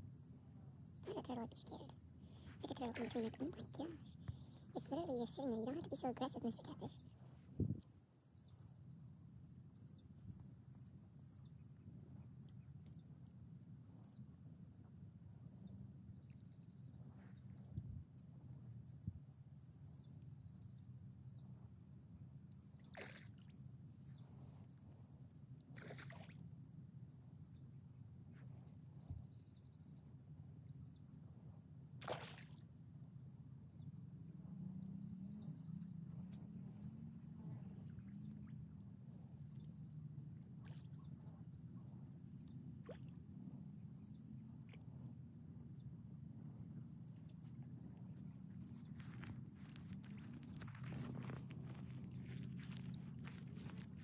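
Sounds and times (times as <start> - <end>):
outdoor noise: 0.0 - 54.0
fish splashing and slurping: 22.8 - 23.6, 25.7 - 26.4, 32.0 - 32.6.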